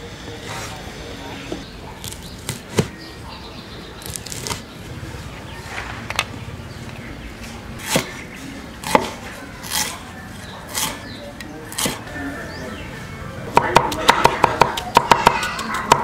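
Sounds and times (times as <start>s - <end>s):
cleaver chopping on wooden block: 13.6s - 16.0s.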